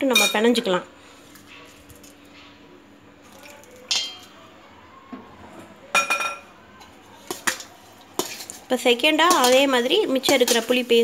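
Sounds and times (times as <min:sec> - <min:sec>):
metal ladle clinking against bowl: 0:03.9 - 0:04.3, 0:09.2 - 0:10.8.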